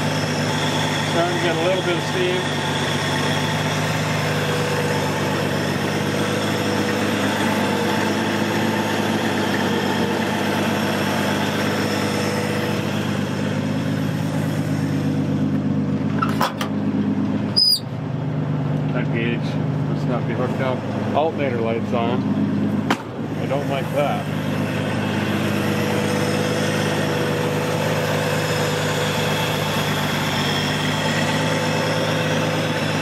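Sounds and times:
truck engine idling: 0.0s - 33.0s
brief squeak: 17.6s - 17.9s.

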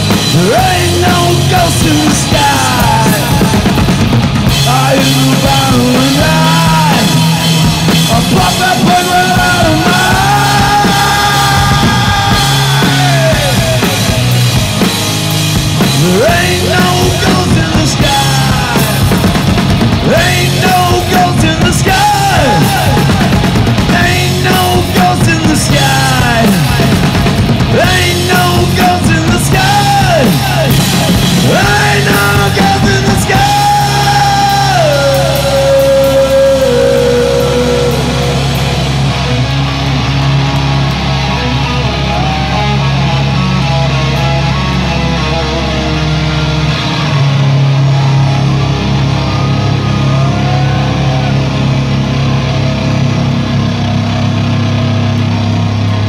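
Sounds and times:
distorted electric guitar: 0.0s - 56.0s
drum kit: 0.0s - 56.0s
low drone: 26.0s - 56.0s.

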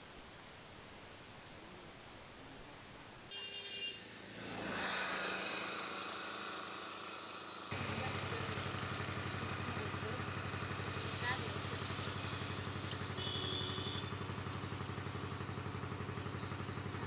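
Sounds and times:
hiss: 0.0s - 3.3s
outdoor background noise: 0.0s - 17.0s
small engine idling: 5.2s - 17.0s.

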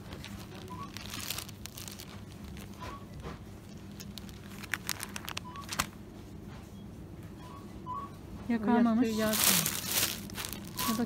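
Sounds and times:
crinkling of plastic wrapping: 0.0s - 3.0s, 3.7s - 5.9s, 9.1s - 11.0s
steady low hum: 0.0s - 11.0s.

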